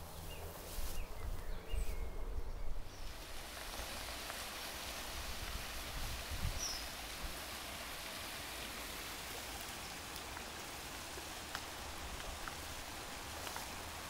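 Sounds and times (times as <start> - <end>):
small waterfall splashing: 2.9 - 14.0.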